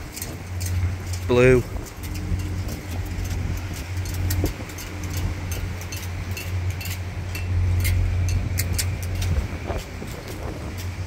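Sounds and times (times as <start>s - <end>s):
light clicks and clinks: 0.0s - 11.0s
wind buffeting microphone: 0.0s - 11.0s.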